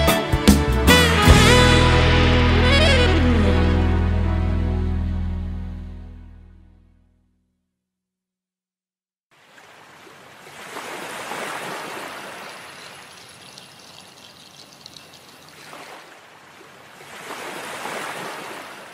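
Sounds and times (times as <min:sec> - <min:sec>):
waves washing over rocky shore: 0:10.5 - 0:16.0.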